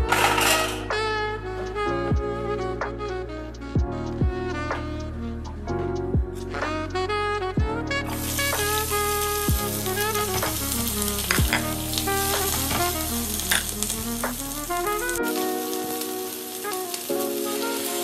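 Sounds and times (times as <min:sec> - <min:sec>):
background music: 0:00.0 - 0:18.0
onions sizzling in oil: 0:08.1 - 0:18.0.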